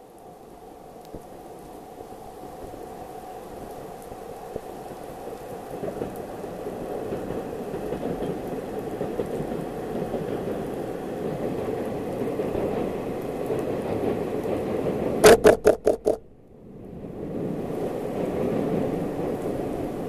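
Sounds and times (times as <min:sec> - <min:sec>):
wind-like noise: 0:00.0 - 0:20.0
sharp loud knocks: 0:15.2 - 0:16.2.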